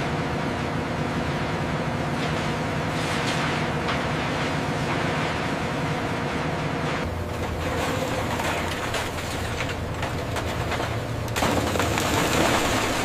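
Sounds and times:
scrap metal shredder drone: 0:00.0 - 0:13.0
metal crunching and clattering: 0:07.0 - 0:13.0.

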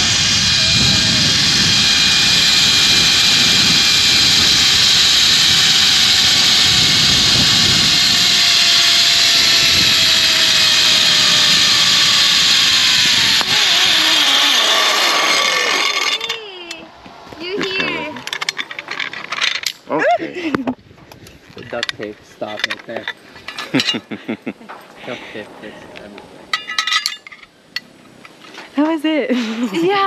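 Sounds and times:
wind rushing over microphone: 0:00.0 - 0:16.0, 0:20.7 - 0:22.4
zip-line pulleys whirring on cable: 0:00.0 - 0:19.8.

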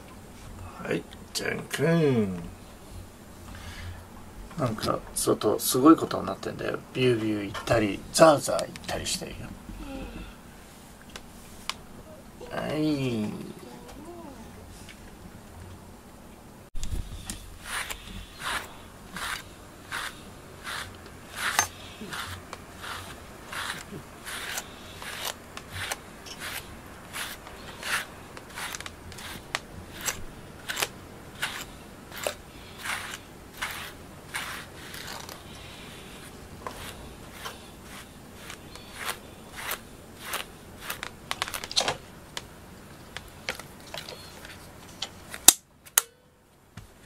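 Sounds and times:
brush raking through fur: 0:17.1 - 0:41.1.

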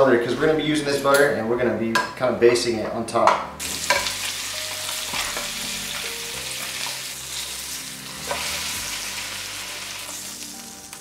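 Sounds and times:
fish sizzling in a pan: 0:03.6 - 0:11.0.

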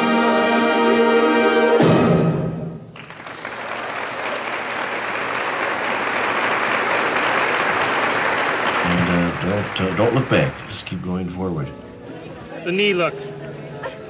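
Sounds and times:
audience applauding: 0:03.0 - 0:11.2.

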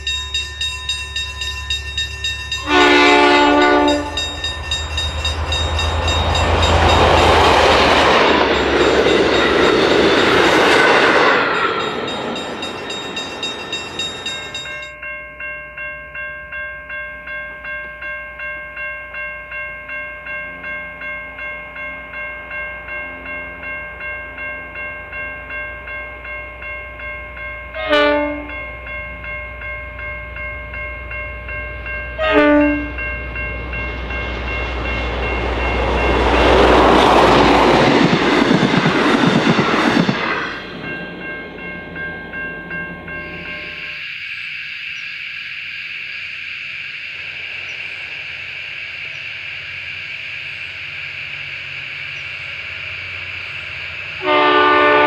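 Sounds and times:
train wheels rushing past: 0:00.0 - 0:14.9, 0:31.4 - 0:44.0
diesel locomotive engine rumble: 0:00.0 - 0:15.0, 0:19.4 - 0:44.0
train horn blasts: 0:02.6 - 0:04.4, 0:27.7 - 0:28.6, 0:32.1 - 0:33.0, 0:54.2 - 0:55.0.

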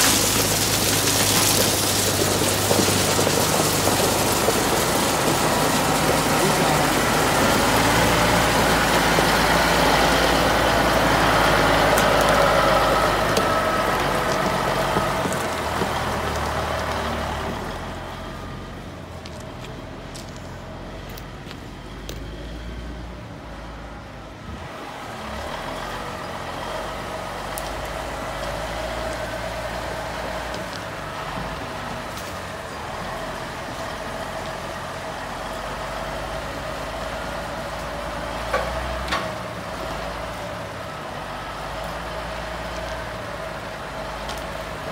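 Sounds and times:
diesel truck engine running: 0:00.0 - 0:44.9.

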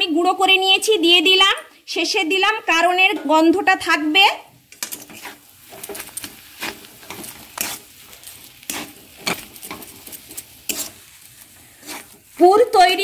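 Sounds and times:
metal spatula scraping pan: 0:04.7 - 0:12.8.

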